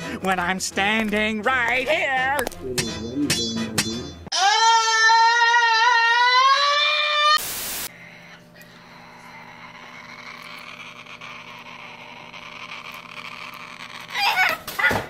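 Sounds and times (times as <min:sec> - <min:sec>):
cartoon scream: 0:04.3 - 0:07.4, 0:13.8 - 0:15.0
burst of static: 0:07.4 - 0:07.9.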